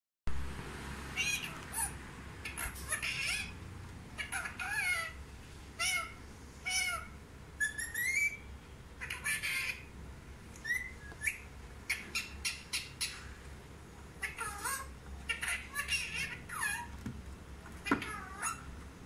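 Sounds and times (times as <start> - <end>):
parakeet squawking and chirping: 1.1 - 3.6, 4.2 - 5.2, 5.8 - 9.9, 10.6 - 13.4, 14.1 - 17.0, 17.7 - 18.8.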